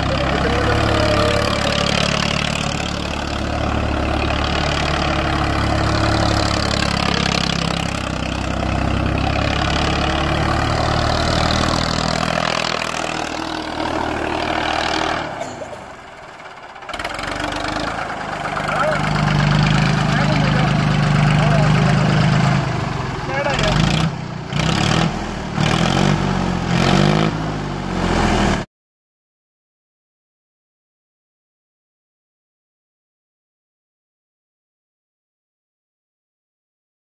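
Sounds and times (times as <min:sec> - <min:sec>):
tractor engine running: 0:00.0 - 0:28.6.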